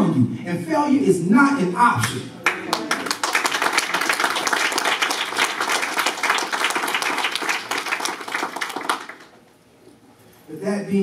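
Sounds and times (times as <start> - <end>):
audience applauding: 2.4 - 9.4.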